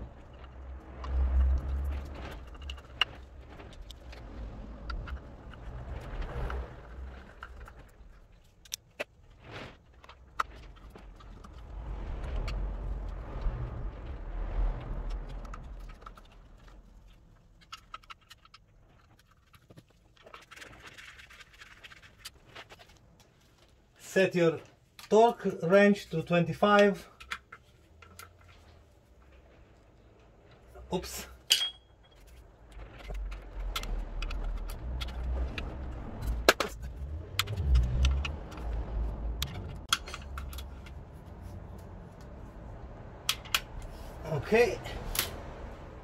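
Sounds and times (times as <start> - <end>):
low bumps: 0.0 - 17.6, 32.0 - 46.0
rustling: 0.0 - 46.0
metal clinks: 31.4 - 32.2.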